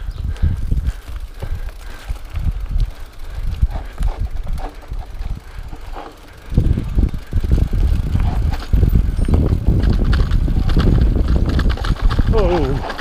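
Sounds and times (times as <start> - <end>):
bike rattling and knocking: 0.0 - 13.0
bike tyres rumbling on dirt: 0.0 - 13.0.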